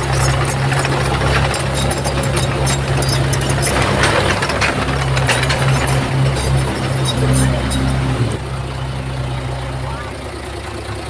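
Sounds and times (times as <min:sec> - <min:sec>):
small clicks and rattles: 0:00.0 - 0:08.4
bulldozer diesel engine running: 0:00.0 - 0:11.0.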